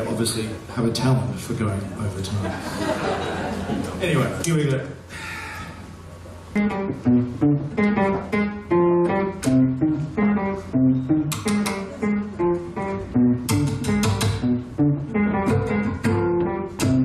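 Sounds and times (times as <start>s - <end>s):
acoustic guitar melody: 6.6s - 17.0s.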